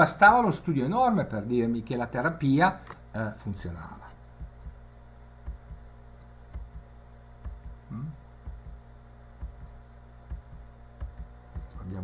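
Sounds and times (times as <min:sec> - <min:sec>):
low electrical hum: 0:00.0 - 0:12.0
soft low thumps: 0:04.2 - 0:12.0
brief low vocal sound: 0:07.9 - 0:08.2.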